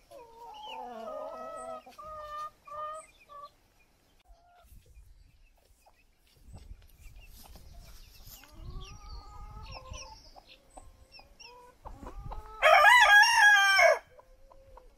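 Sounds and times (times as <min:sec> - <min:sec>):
chickens clucking softly: 0:00.0 - 0:12.7, 0:14.1 - 0:14.9
rooster crowing: 0:12.6 - 0:14.1.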